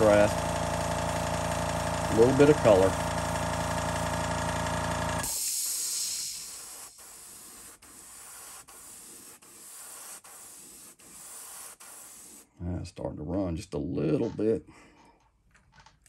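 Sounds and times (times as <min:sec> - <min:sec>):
small air compressor running: 0:00.0 - 0:12.4
airbrush hissing: 0:05.2 - 0:12.5.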